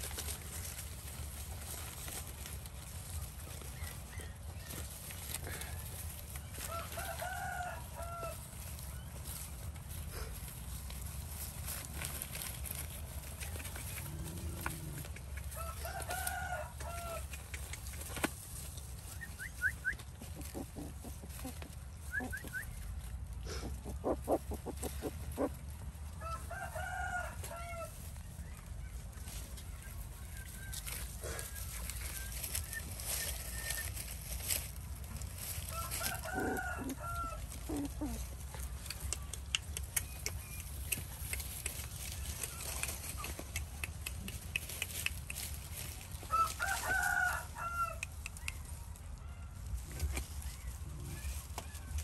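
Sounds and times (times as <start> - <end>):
rooster crowing: 6.6 - 8.4, 15.5 - 17.3, 26.2 - 28.0, 35.6 - 38.1, 46.2 - 48.1.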